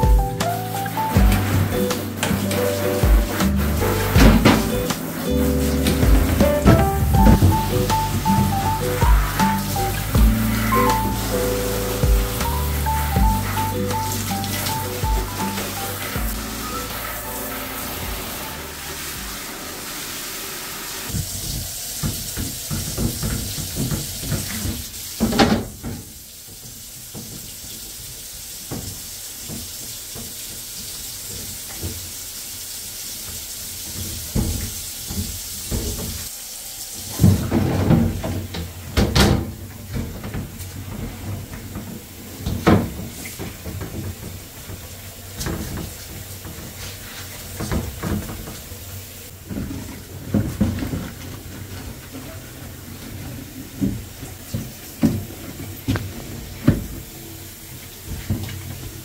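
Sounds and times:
scrubbing: 0.0s - 24.7s
water sloshing and splashing: 0.0s - 27.9s
running water hiss: 0.0s - 59.0s.

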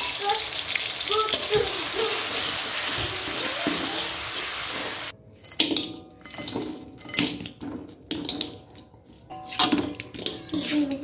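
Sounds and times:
chili paste sizzling in oil: 0.0s - 5.1s.

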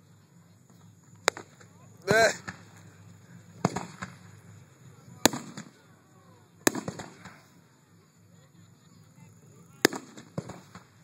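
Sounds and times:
firework crackling: 0.0s - 11.0s
fireworks bangs: 0.7s - 5.9s, 6.6s - 7.6s, 9.7s - 11.0s.

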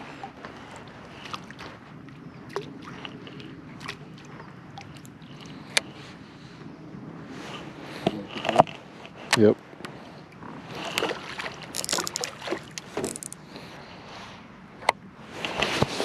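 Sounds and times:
wind: 0.0s - 16.0s
fishing rod and reel clicks: 11.7s - 13.4s.

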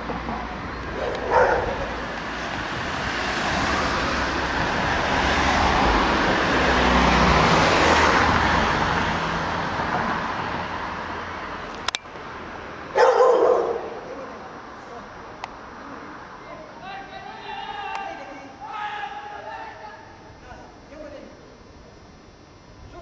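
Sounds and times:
car passing by: 1.3s - 11.6s
sharp click: 11.7s - 12.2s.

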